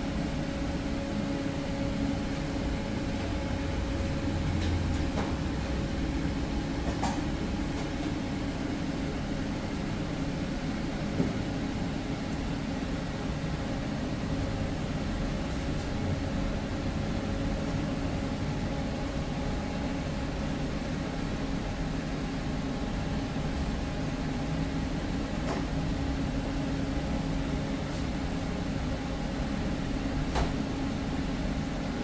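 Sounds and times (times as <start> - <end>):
low mechanical hum: 0.0 - 32.0.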